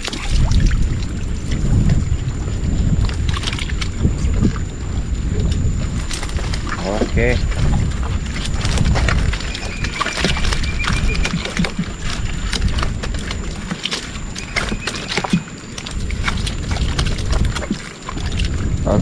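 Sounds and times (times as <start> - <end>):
fish flapping in wooden boat hull: 0.0 - 18.7
wind rumble on microphone: 0.0 - 19.0.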